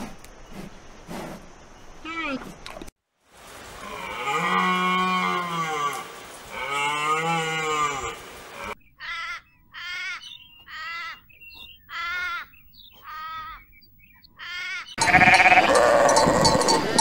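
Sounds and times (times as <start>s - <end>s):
animal calling: 3.8s - 17.0s.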